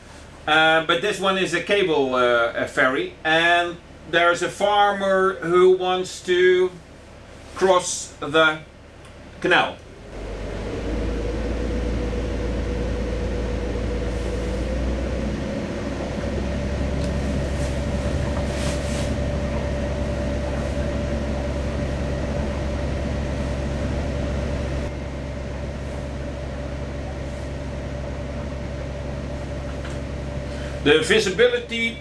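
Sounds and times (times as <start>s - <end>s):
boat engine droning: 9.5s - 32.0s.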